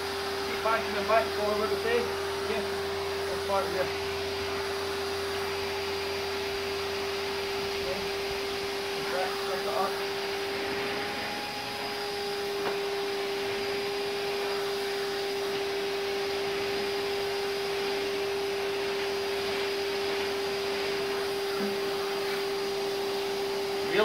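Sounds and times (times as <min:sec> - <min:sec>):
vacuum cleaner running: 0:00.0 - 0:24.0.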